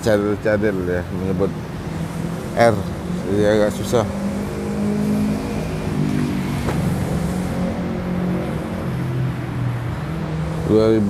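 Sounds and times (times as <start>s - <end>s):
vehicle engines revving: 0.0s - 11.0s.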